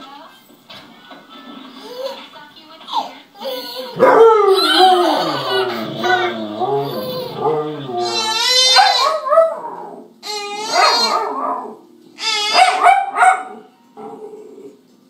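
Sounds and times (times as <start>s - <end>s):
small dog barking: 8.6s - 9.6s, 10.7s - 11.7s, 12.5s - 13.7s.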